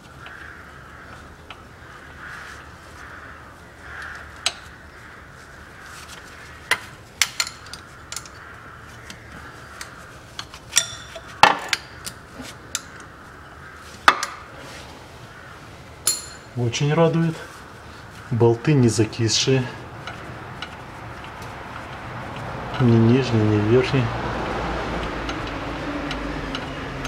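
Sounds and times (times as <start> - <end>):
wrench clicking on bolts: 7.2 - 8.4.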